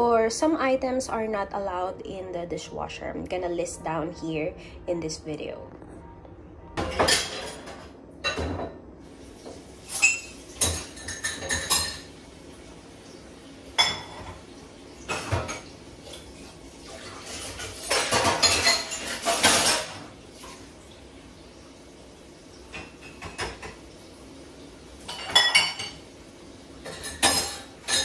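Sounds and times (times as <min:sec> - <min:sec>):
dishes and cutlery clattering: 0:06.8 - 0:08.8, 0:09.5 - 0:12.2, 0:13.8 - 0:16.3, 0:16.9 - 0:20.6, 0:22.7 - 0:23.8, 0:25.0 - 0:26.1, 0:26.8 - 0:28.0.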